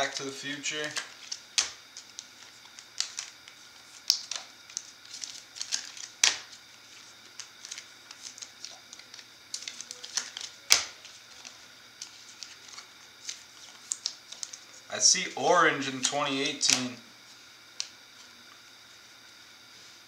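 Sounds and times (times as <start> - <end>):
cards clicking and slapping: 0.0 - 14.6, 16.0 - 17.0.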